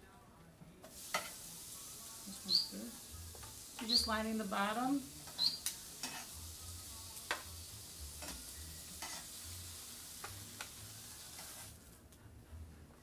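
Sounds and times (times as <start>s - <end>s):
slices sizzling in oil: 0.8s - 11.9s
metal tongs clacking on pan: 5.2s - 6.3s, 8.2s - 9.3s.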